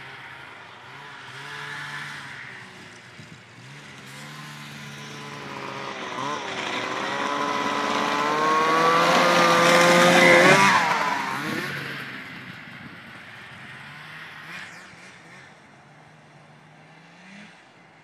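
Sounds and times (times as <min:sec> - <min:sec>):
snowmobile engine passing by: 0:00.0 - 0:18.0.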